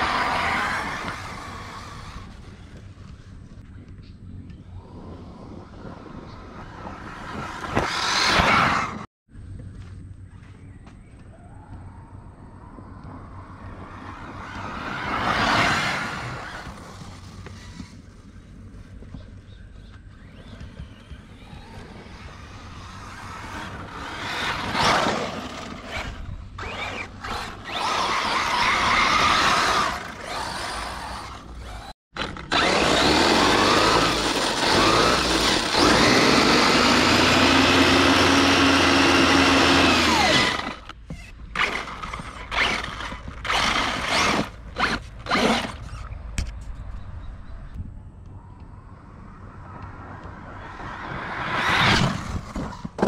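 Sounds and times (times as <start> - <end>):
tyres churning sand: 0.0 - 2.7, 21.6 - 40.9
electric motor whining: 20.2 - 46.0.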